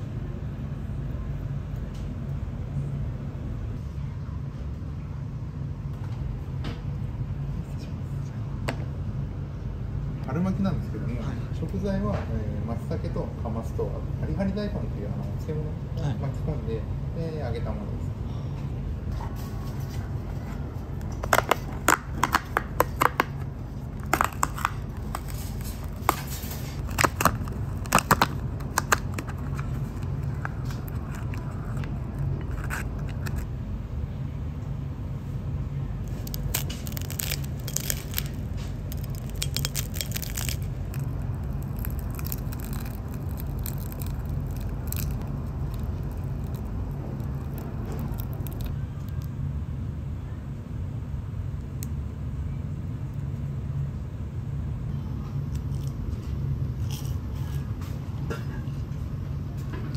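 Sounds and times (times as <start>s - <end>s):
low room hum: 0.0s - 59.9s
paperboard tearing: 36.1s - 48.6s.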